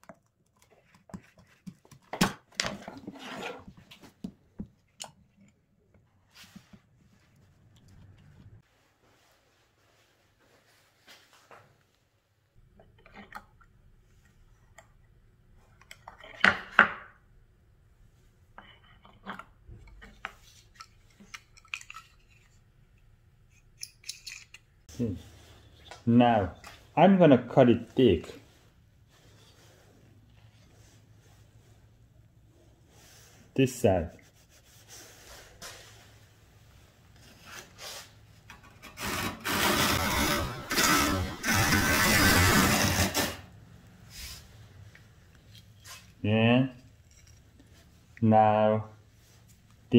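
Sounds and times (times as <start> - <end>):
planer blade rasping: 38.8 - 43.4
wooden planer rubbing on board: 38.9 - 43.4.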